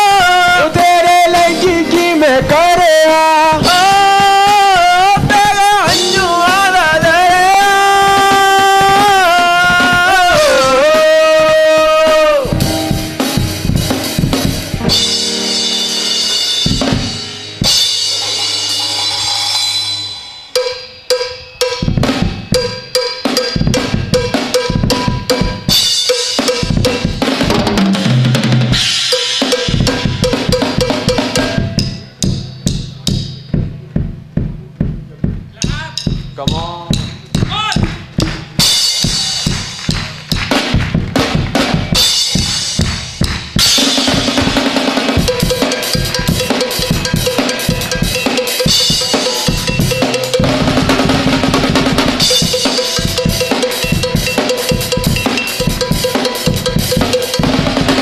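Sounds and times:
man singing long note: 0:00.0 - 0:12.7
drum solo: 0:00.0 - 0:58.0
live band playing: 0:00.0 - 0:58.0.

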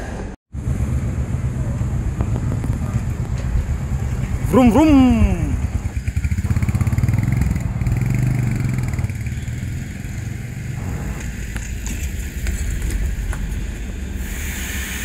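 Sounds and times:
street traffic rumble: 0:00.0 - 0:15.0
truck driving past: 0:00.1 - 0:14.2
motorcycle engine pulling away: 0:00.6 - 0:13.4.

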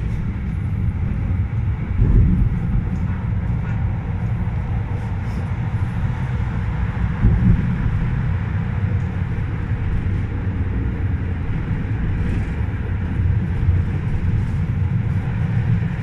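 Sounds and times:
tram wheels rumbling on rails: 0:00.0 - 0:16.0.

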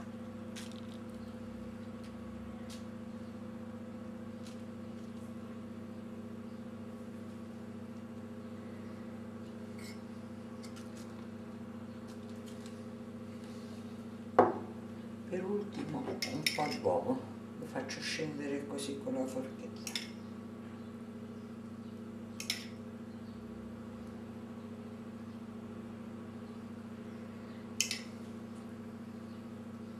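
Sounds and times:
electrical hum: 0:00.0 - 0:29.9
spoon clicking on ceramic bowl: 0:22.4 - 0:22.7.

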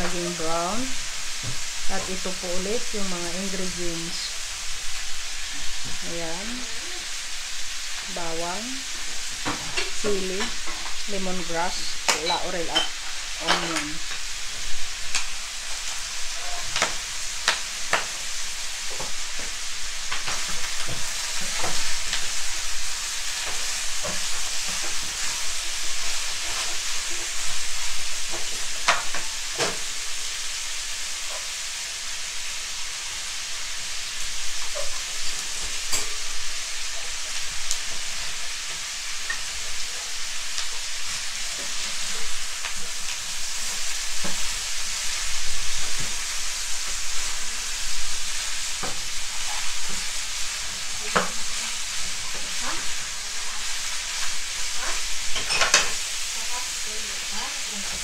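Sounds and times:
meat sizzling in a pan: 0:00.0 - 0:58.0
wooden spatula scraping a pan: 0:48.8 - 0:56.5.

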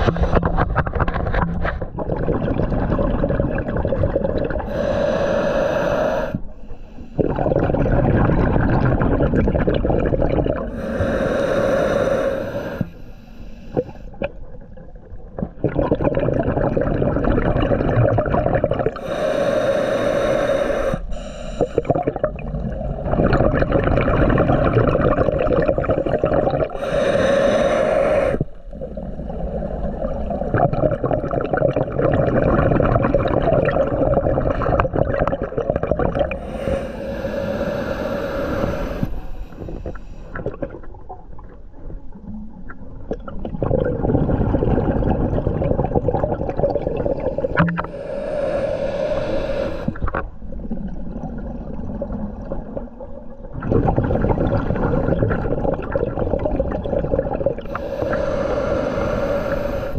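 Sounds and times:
rumbling exhaled bubbles: 0:00.0 - 0:05.6, 0:07.2 - 0:12.9, 0:13.7 - 0:19.6, 0:21.6 - 0:59.9
regulator hissing inhales: 0:04.6 - 0:07.2, 0:10.7 - 0:14.2, 0:19.0 - 0:22.0, 0:26.7 - 0:28.7, 0:36.4 - 0:40.4, 0:47.4 - 0:50.2, 0:57.7 - 0:59.9.

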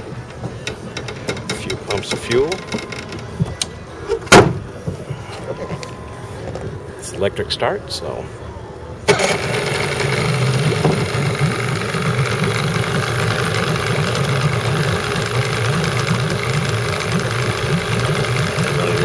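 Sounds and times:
outboard motor electric starter: 0:00.6 - 0:03.4, 0:09.1 - 0:19.0
outboard motor idling: 0:09.1 - 0:19.0.

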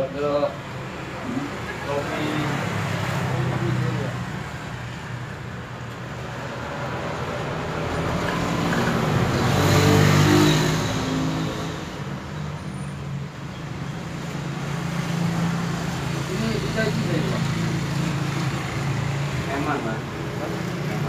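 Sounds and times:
vehicle passing by: 0:06.2 - 0:12.2.

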